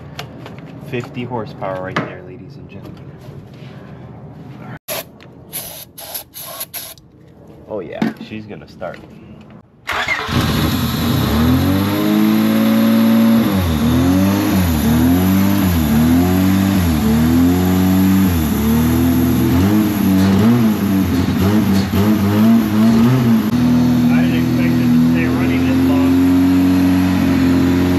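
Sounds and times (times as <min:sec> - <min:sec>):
car engine starting and surging: 0:09.8 - 0:27.9.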